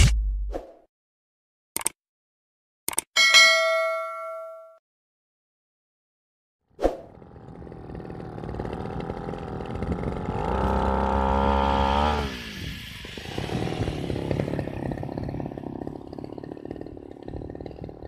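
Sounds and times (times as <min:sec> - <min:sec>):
small engine revving: 0:06.9 - 0:18.0.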